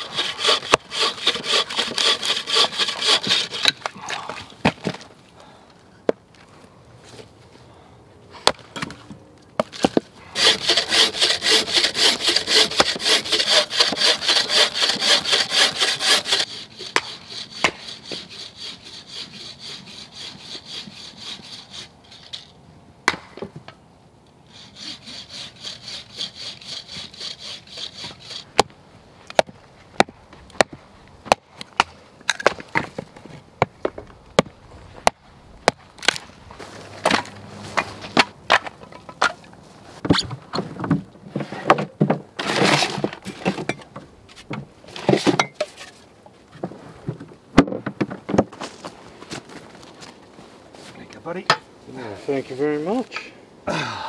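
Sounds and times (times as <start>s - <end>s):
hand saw cutting wood: 0.0s - 3.9s, 10.3s - 22.5s, 24.5s - 28.6s, 42.4s - 43.6s
hatchet chopping wood: 9.6s - 18.2s, 23.1s - 23.4s, 29.3s - 32.9s.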